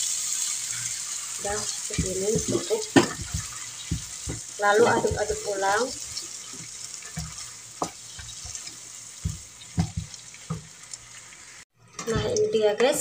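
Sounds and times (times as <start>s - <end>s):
sauce sizzling: 0.0s - 11.7s
wooden spatula scraping a pan: 1.5s - 10.7s.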